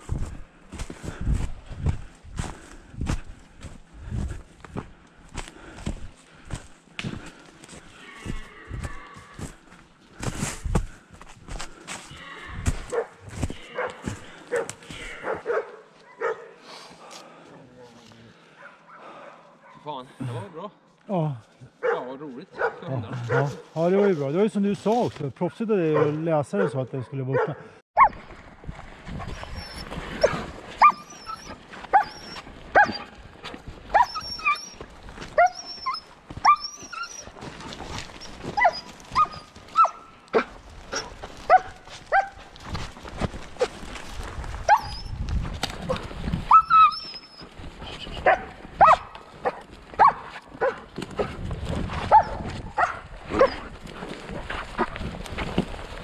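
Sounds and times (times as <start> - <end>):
dog barking: 12.9 - 16.6, 18.6 - 19.9, 21.8 - 24.2, 25.9 - 28.1, 30.2 - 31.0, 32.8 - 33.1, 41.5 - 42.4, 48.2 - 50.8, 52.1 - 53.6.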